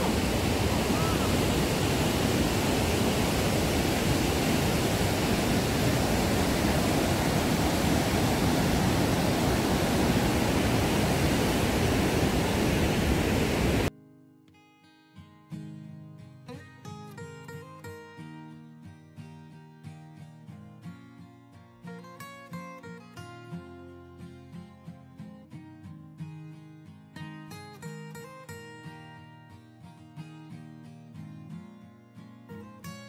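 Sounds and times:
river rapids rushing: 0.0 - 13.9
plucked guitar music: 13.9 - 33.0.

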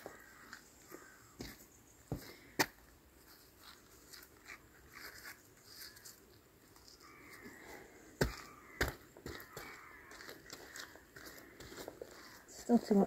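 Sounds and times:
stones scraping: 0.0 - 13.0.

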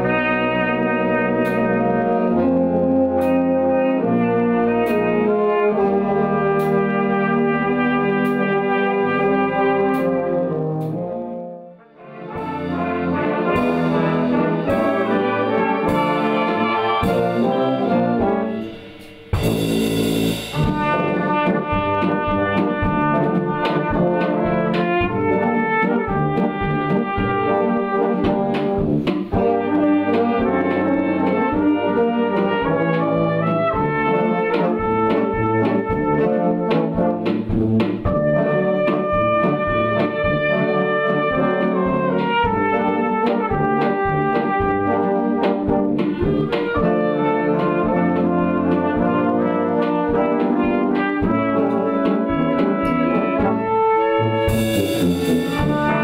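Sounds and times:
flugelhorn solo: 0.0 - 37.4, 38.0 - 56.0
brass band playing: 0.0 - 56.0
light percussion strokes: 15.9 - 22.6.

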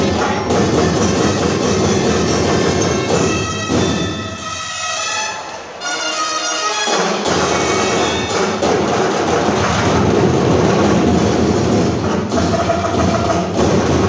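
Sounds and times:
heavy drums: 0.0 - 5.1, 6.9 - 14.0
reedy wind instrument melody: 0.4 - 8.7.

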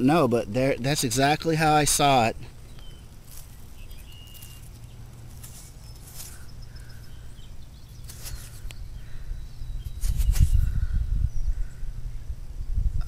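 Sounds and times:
low rumbling microphone noise: 0.0 - 13.0
fingers rustling in dirt and grass: 0.4 - 8.9, 9.7 - 10.9
faint bird chirps: 2.4 - 12.8.

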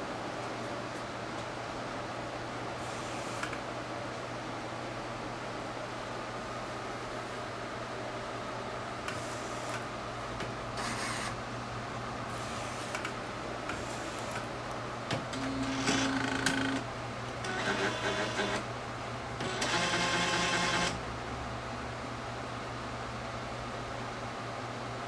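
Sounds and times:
printer hissing: 2.8 - 3.5, 9.1 - 9.8, 12.3 - 13.0, 13.7 - 18.7, 19.4 - 21.0
printer mechanism whirring: 10.4 - 11.4, 12.3 - 18.7, 19.3 - 21.1.

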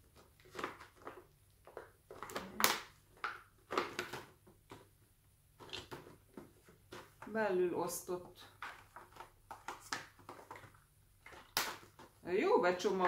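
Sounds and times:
plastic packaging crackling: 0.0 - 4.8, 8.3 - 13.0.

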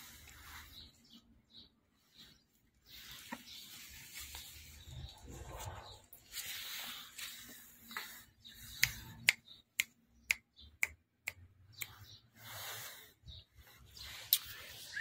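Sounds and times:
soft rustling: 2.0 - 8.3
finger snaps: 8.7 - 12.0.

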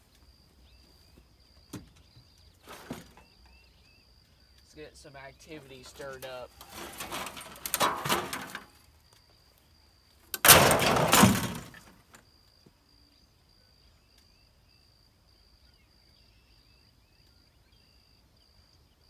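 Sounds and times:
metal clattering: 6.6 - 8.7, 10.4 - 11.9.

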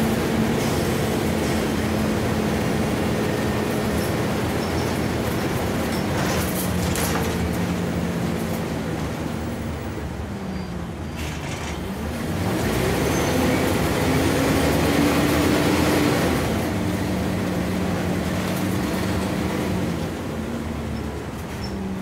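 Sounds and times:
bus diesel engine: 0.0 - 22.0
road noise: 0.0 - 22.0.

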